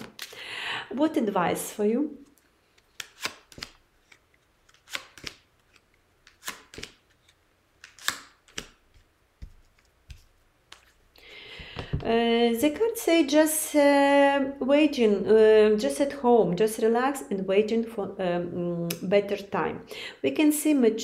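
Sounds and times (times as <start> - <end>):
cards clicking and slapping on table: 2.8 - 7.1, 7.8 - 11.0.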